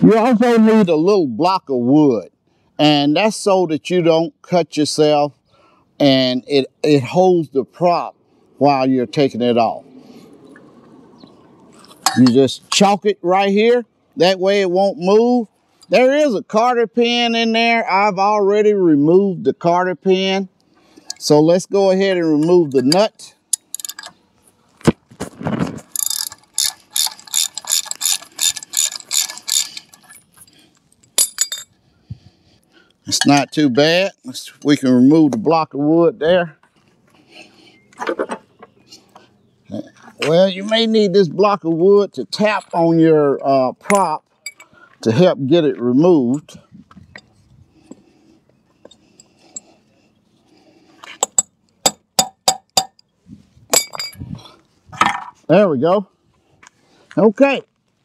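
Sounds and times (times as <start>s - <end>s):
ratchet wrench clicking: 25.9s - 30.2s.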